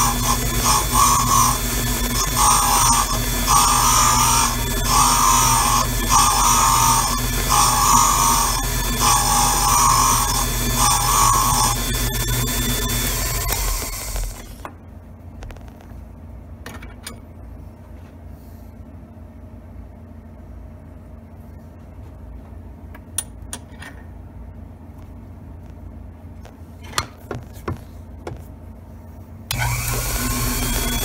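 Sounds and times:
grinding motor running: 0.0s - 14.6s, 29.5s - 31.0s
low steady hum: 13.1s - 31.0s.

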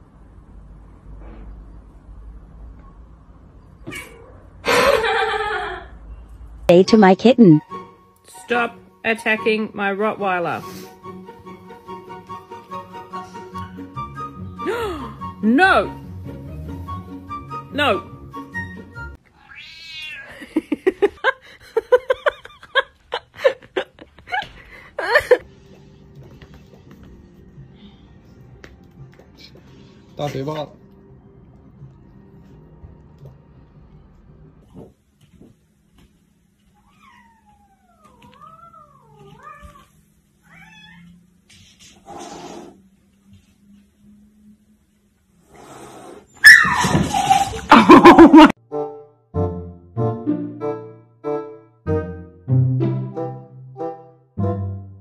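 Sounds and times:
background music: 6.7s - 19.2s, 25.3s - 34.7s, 48.2s - 55.0s
cat meowing: 19.4s - 20.3s, 36.8s - 41.2s.

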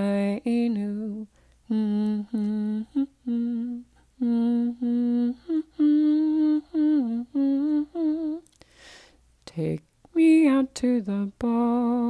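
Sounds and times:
woman humming a slow tune: 0.0s - 8.5s.

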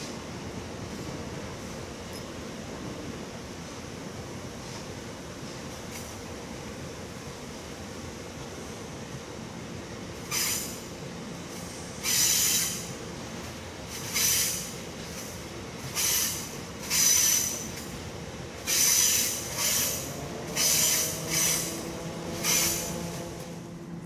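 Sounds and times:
train rumbling: 0.0s - 24.0s
train wheels squealing: 10.2s - 10.9s, 11.5s - 13.0s, 13.9s - 17.9s, 18.6s - 23.3s.

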